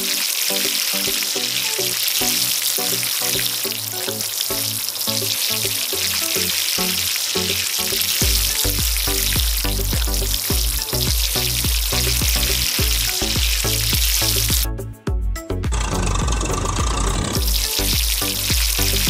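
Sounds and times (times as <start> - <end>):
water spraying onto sand: 0.0 - 14.7, 17.4 - 19.0
background music: 0.0 - 19.0.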